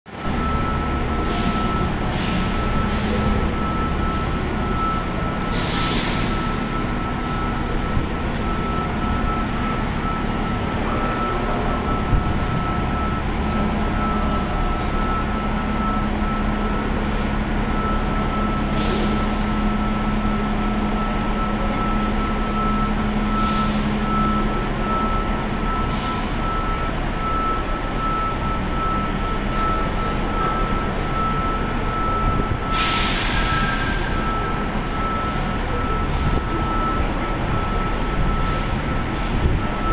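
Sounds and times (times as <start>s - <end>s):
bus engine rumbling: 0.1s - 39.9s
air brakes hissing: 1.2s - 4.4s, 5.4s - 7.4s, 18.6s - 19.4s, 23.3s - 24.1s, 32.7s - 34.6s, 37.9s - 39.6s.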